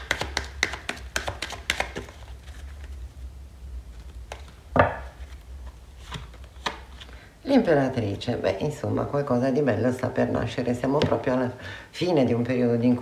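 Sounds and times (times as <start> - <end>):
cards shuffling: 0.0 - 3.0, 3.9 - 7.2
knock on table: 4.8 - 5.0.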